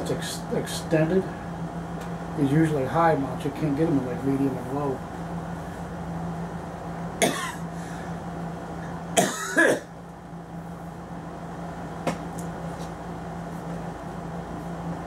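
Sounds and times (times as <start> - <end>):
steady low hum: 0.0 - 15.0
man clearing throat coughing: 7.2 - 7.7, 9.2 - 9.9.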